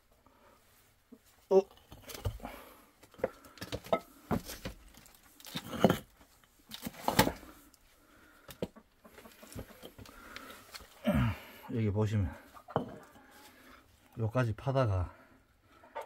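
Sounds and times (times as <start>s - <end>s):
bricks knocking and scraping: 1.8s - 4.8s, 5.5s - 6.1s.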